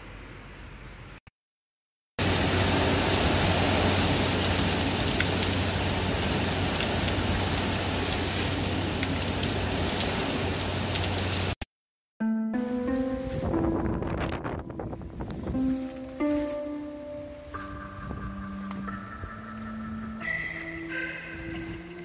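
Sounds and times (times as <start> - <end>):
heavy rain hiss: 2.2 - 11.6.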